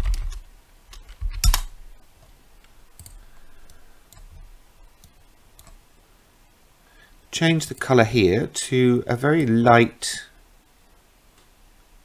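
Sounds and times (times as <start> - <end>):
keyboard and mouse clicks: 3.0 - 4.4, 5.0 - 5.8.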